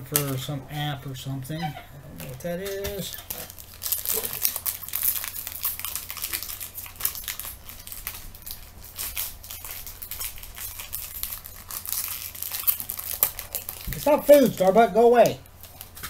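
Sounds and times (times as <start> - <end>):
plastic wrapper crumpling: 2.2 - 16.0.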